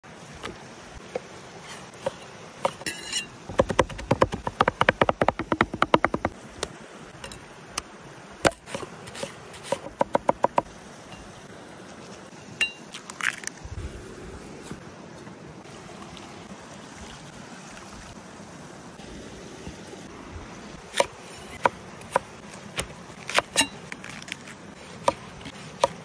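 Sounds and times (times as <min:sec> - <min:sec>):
stream running: 0:00.0 - 0:26.0
cleaver chopping meat on wood: 0:03.5 - 0:06.4, 0:09.8 - 0:10.7, 0:25.0 - 0:26.0.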